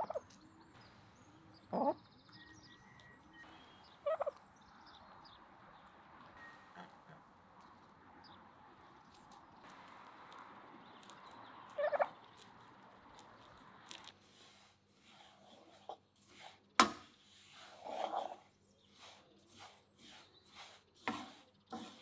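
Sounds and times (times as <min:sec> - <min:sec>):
fowl rattling call: 0:11.7 - 0:12.2.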